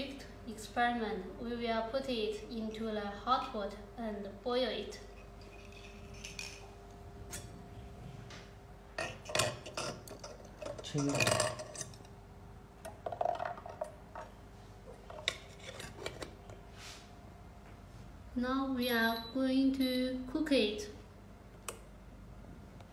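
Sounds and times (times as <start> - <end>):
glass and metal clinking: 9.0 - 12.1.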